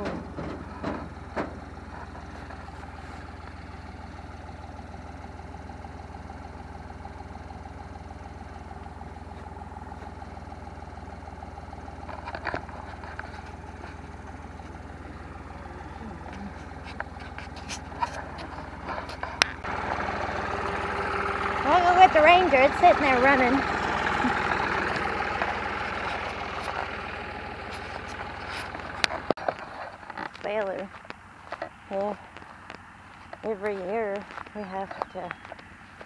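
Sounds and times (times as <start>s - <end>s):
engine idling: 0.0s - 36.0s.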